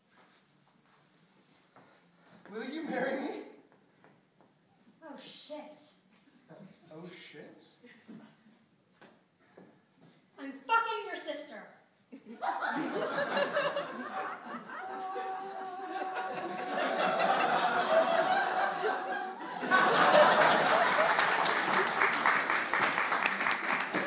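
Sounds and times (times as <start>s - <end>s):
audience laughing: 12.2s - 22.5s
audience clapping: 14.8s - 24.0s.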